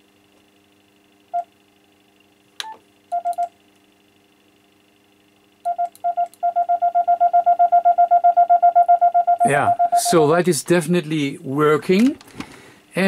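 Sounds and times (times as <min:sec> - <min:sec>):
click: 0:02.6 - 0:03.5, 0:05.7 - 0:06.4
morse code beeps: 0:05.7 - 0:10.2.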